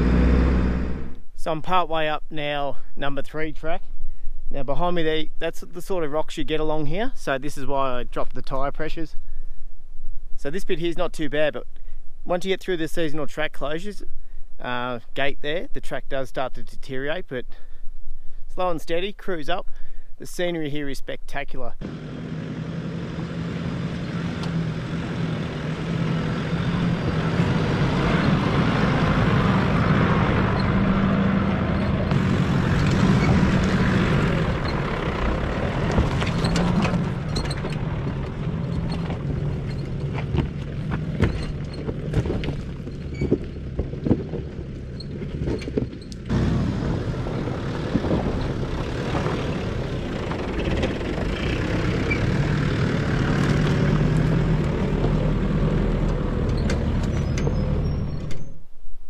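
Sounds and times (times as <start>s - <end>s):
diesel engine droning: 0.0s - 6.9s, 21.8s - 58.5s
stones crunching under tyres: 35.4s - 46.4s.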